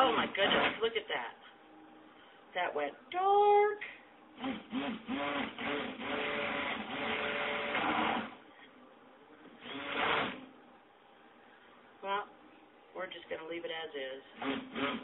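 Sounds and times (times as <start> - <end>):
electric stick blender whirring: 4.4 - 8.4, 9.6 - 10.4, 14.4 - 15.0.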